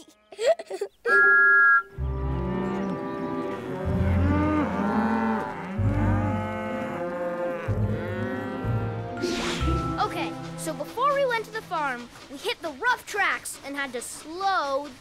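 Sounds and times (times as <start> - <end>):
cartoon cows mooing: 2.2 - 9.3.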